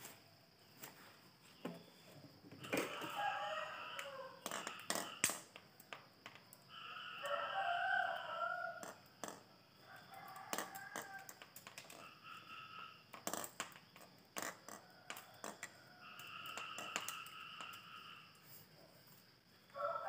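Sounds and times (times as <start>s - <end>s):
rooster crowing: 2.6s - 5.2s, 6.7s - 13.0s, 14.7s - 18.3s, 19.7s - 20.0s.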